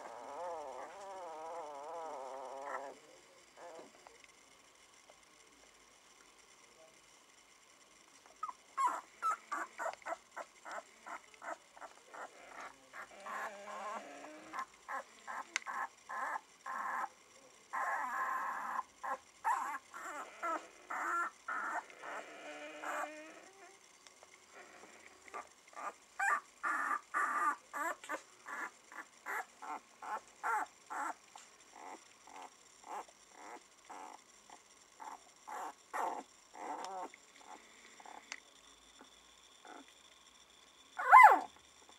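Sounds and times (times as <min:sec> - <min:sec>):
puppies whining: 0:00.0 - 0:03.0, 0:08.4 - 0:17.1, 0:17.7 - 0:23.8, 0:24.6 - 0:31.2, 0:31.8 - 0:34.2, 0:35.0 - 0:38.4, 0:39.6 - 0:39.9, 0:41.0 - 0:41.9
puppies squeaking: 0:08.4 - 0:17.1, 0:41.0 - 0:41.5.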